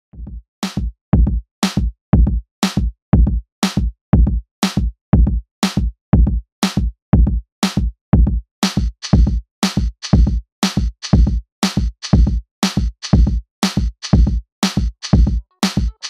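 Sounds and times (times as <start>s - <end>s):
electronic beat music: 8.7s - 16.0s.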